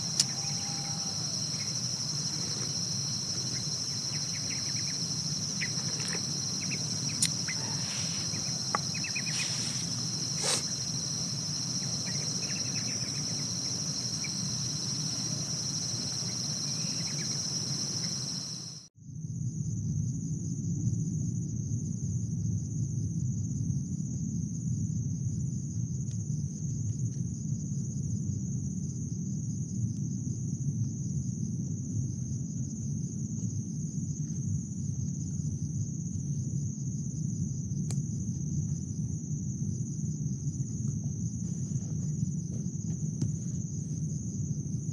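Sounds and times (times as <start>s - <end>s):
pulsing chirp: 0.0s - 18.8s
insects trilling: 0.0s - 18.9s, 33.6s - 44.9s.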